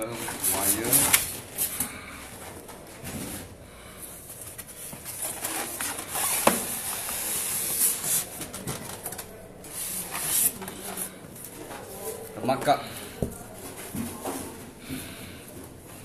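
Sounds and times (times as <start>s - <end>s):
plastic wrap rustling: 0.0s - 1.8s, 4.3s - 14.6s
foam and cardboard rubbing: 5.1s - 11.0s.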